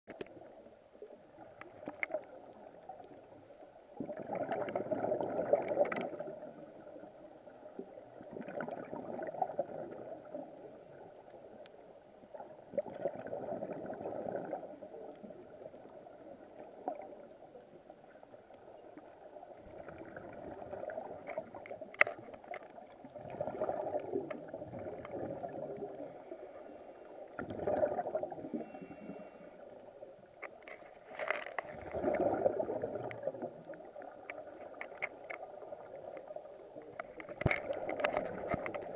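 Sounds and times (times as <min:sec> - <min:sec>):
bubbles gurgling underwater: 0:04.0 - 0:11.3, 0:12.3 - 0:17.4, 0:19.1 - 0:21.9, 0:22.8 - 0:26.2, 0:27.2 - 0:28.8, 0:31.7 - 0:34.6, 0:35.4 - 0:38.9.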